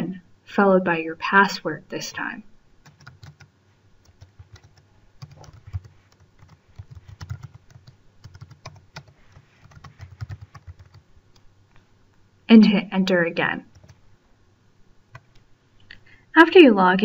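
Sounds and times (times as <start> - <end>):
typing on computer keyboard: 2.8 - 11.0, 13.7 - 14.0.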